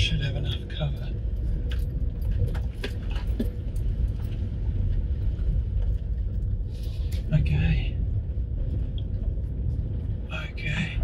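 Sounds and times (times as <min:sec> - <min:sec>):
car engine and tyre rumble: 0:00.0 - 0:11.0.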